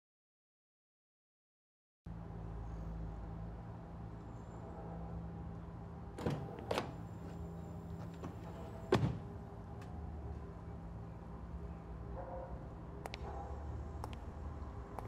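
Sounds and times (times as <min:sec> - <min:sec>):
short knocks: 0:08.0 - 0:09.4.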